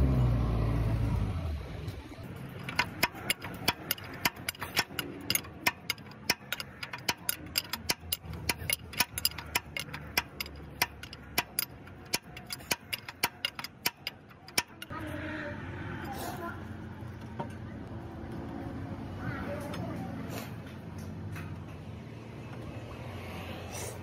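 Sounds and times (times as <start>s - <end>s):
low engine hum: 0.0s - 4.1s
wrench clicking on nut: 2.6s - 14.9s.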